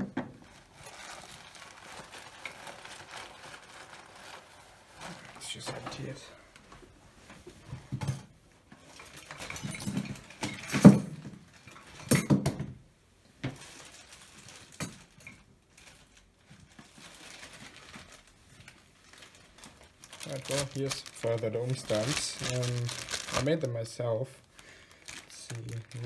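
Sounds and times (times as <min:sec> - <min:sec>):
plastic bag rustling and knocking: 0:13.4 - 0:23.6.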